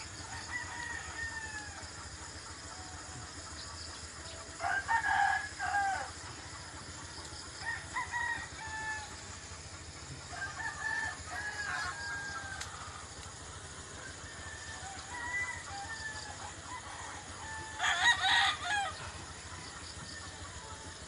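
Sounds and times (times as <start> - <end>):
rooster crowing: 0.2 - 2.0, 4.6 - 6.2, 7.6 - 9.3, 10.3 - 13.0, 14.0 - 19.3.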